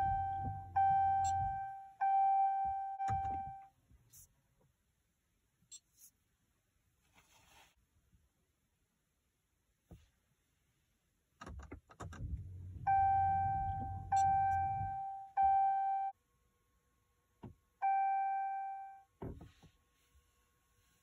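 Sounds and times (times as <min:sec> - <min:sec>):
car warning chime dinging: 0:00.0 - 0:03.7, 0:12.6 - 0:16.1, 0:17.8 - 0:19.0.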